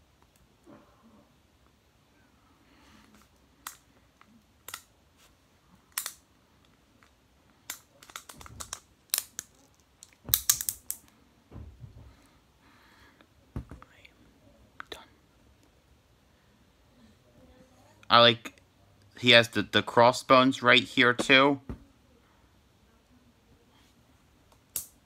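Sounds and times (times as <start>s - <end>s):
plastic toy clicking: 7.7s - 11.1s
soft thump: 11.5s - 12.2s.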